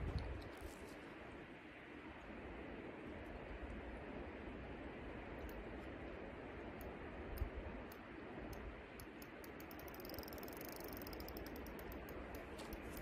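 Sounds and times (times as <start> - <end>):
fishing reel clicking: 7.4 - 13.0.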